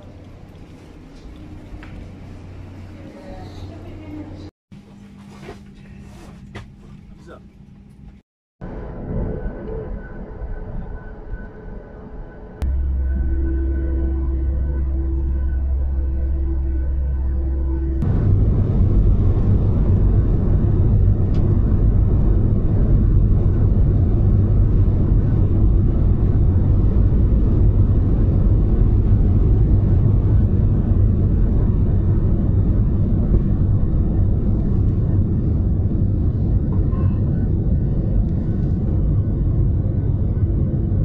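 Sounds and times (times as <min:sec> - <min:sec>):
jet engines roaring at takeoff: 0:18.0 - 0:41.0.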